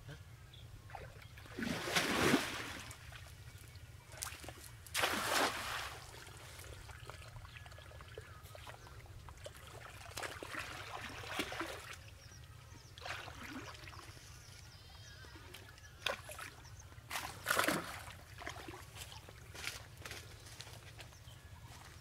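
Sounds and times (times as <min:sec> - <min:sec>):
water splashing: 0:00.9 - 0:03.2, 0:04.2 - 0:12.2, 0:16.0 - 0:19.2
net landing in water: 0:01.6 - 0:02.8, 0:04.9 - 0:06.2
trickling splashes: 0:04.9 - 0:08.7.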